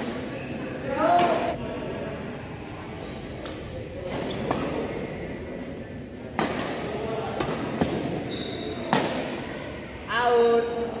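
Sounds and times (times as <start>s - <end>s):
rackets striking shuttlecock: 6.4s - 9.4s.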